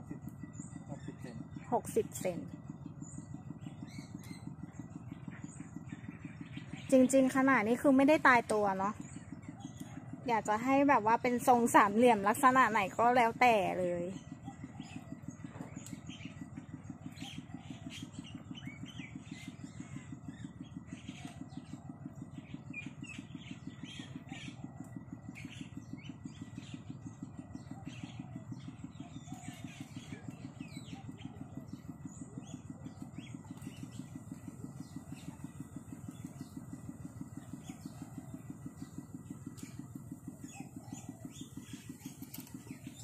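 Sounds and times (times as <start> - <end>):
small birds chirping: 0.0 - 43.0
small engine idling: 0.0 - 43.0.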